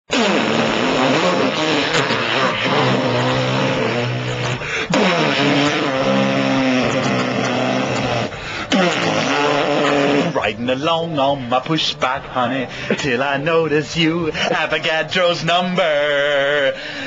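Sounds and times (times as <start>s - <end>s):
man imitating car engine: 0.1s - 10.6s.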